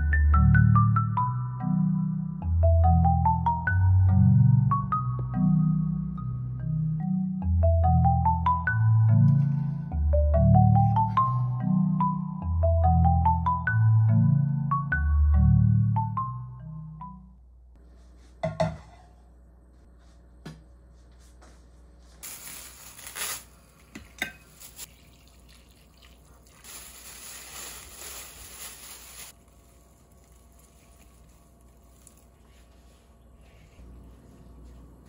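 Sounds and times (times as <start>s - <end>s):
kitchenware knocking: 18.4s - 19.1s
water pouring into a pot: 24.6s - 29.2s.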